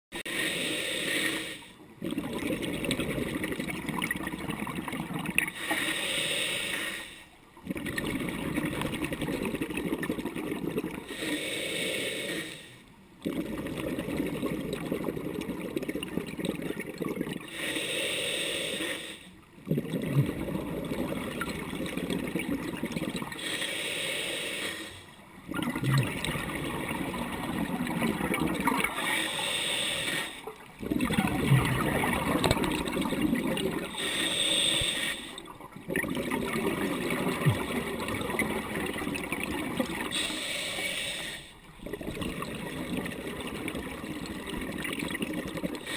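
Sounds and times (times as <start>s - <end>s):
hissing regulator inhale: 0.2s - 1.8s, 5.5s - 7.4s, 11.0s - 12.8s, 17.5s - 19.4s, 23.3s - 25.2s, 28.9s - 30.5s, 33.9s - 35.5s, 40.0s - 41.6s
bubbling exhale underwater: 2.0s - 5.7s, 7.6s - 11.2s, 13.2s - 17.6s, 19.6s - 23.5s, 25.4s - 45.9s.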